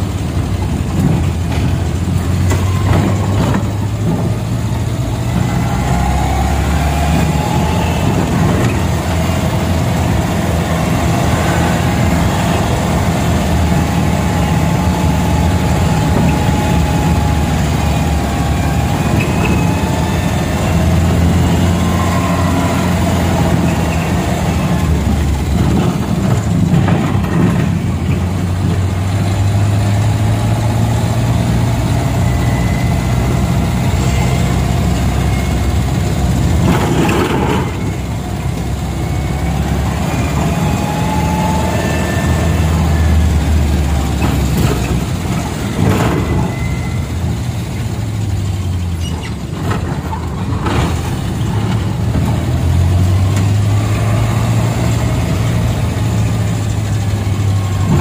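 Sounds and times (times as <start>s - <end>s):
minibus engine running: 0.0s - 58.0s
whine changing in pitch: 4.9s - 25.9s, 29.9s - 47.1s.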